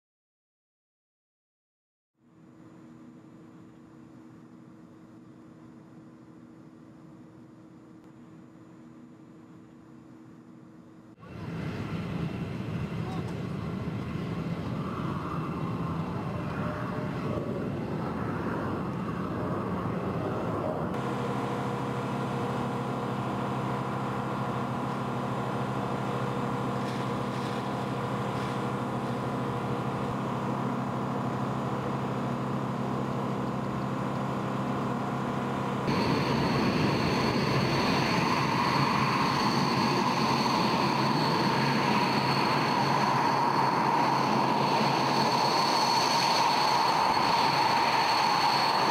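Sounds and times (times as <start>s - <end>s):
jet engines idling: 11.1s - 48.9s.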